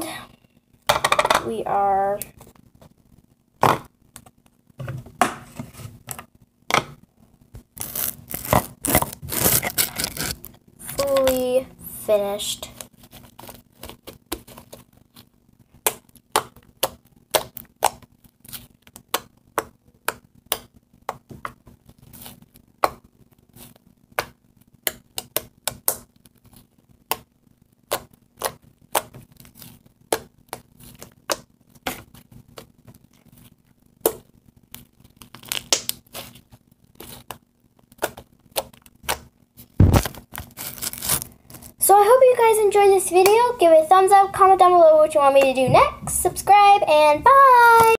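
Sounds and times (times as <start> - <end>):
slime clicking and popping: 15.8 - 18.1, 35.2 - 36.0.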